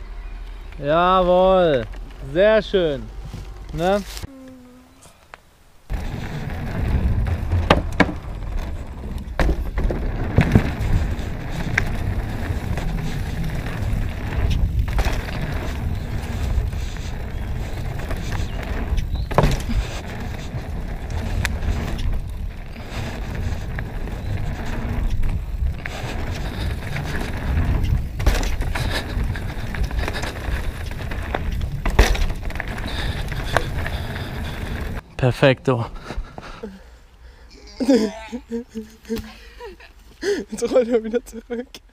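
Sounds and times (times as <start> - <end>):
bike tyres rolling rumble: 0.4 - 4.2, 5.8 - 35.0
bike knocks and rattles: 5.9 - 35.0.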